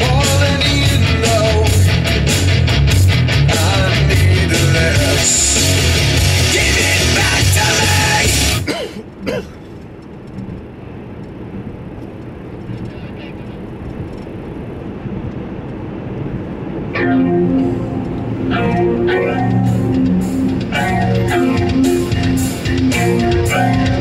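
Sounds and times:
electric guitar music: 0:00.0 - 0:08.7, 0:16.8 - 0:24.0
rock music: 0:00.0 - 0:08.7, 0:17.0 - 0:24.0
road and engine rumble in car: 0:00.0 - 0:24.0.

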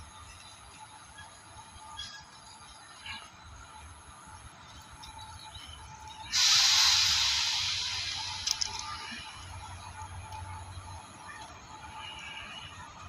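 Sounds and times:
electric locomotive rumbling: 0:00.0 - 0:13.0
loud hiss of released air: 0:06.3 - 0:09.4.

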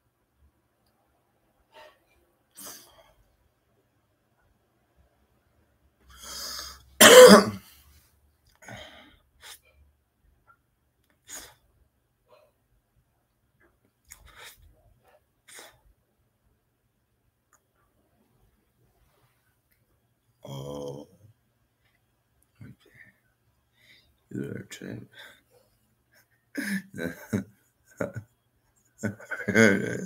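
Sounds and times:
man coughing: 0:07.0 - 0:07.6, 0:26.6 - 0:27.4, 0:29.1 - 0:30.0
breathing: 0:08.6 - 0:09.8, 0:22.8 - 0:24.2.

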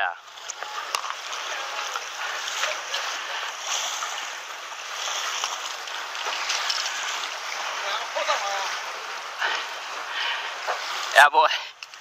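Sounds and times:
faint splashes: 0:00.0 - 0:12.0
seawater rushing over rocks: 0:00.0 - 0:12.0.

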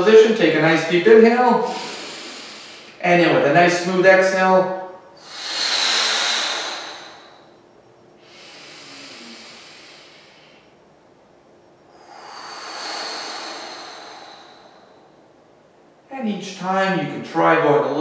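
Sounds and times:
man breathing deeply: 0:01.6 - 0:03.0, 0:05.2 - 0:07.6, 0:08.2 - 0:10.8, 0:11.9 - 0:15.4.

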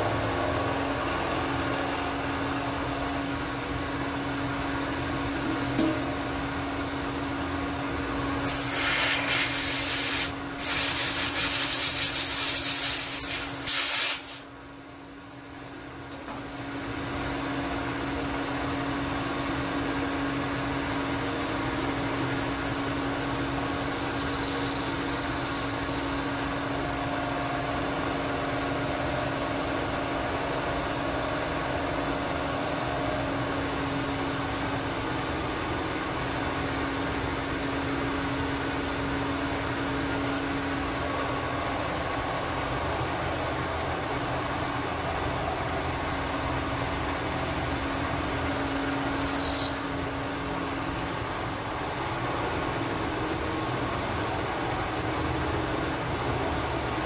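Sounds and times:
loud hiss: 0:08.4 - 0:14.5.

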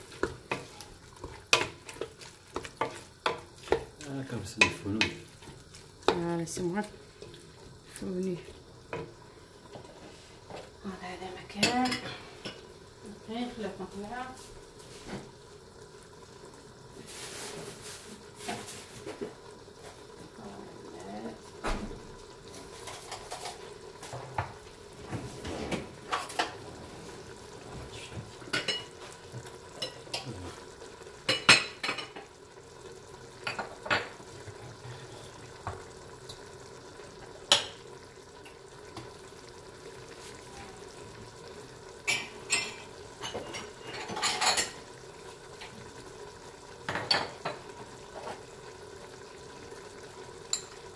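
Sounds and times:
metal utensils clinking on pot: 0:42.1 - 0:44.8.

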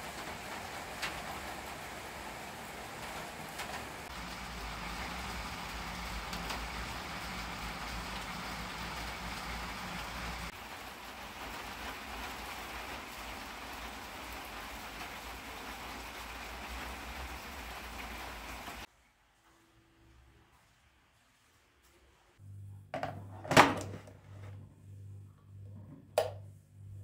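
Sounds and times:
steady rain falling: 0:00.0 - 0:18.9.

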